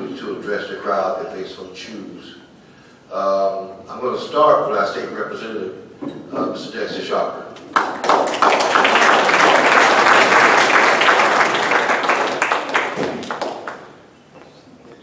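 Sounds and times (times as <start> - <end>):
audience applauding: 7.7 - 14.0.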